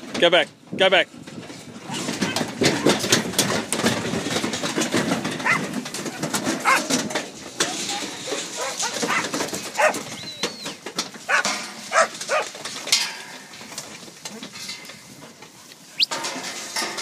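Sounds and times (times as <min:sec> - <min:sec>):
sheep knocking against metal panels: 0:01.9 - 0:14.0.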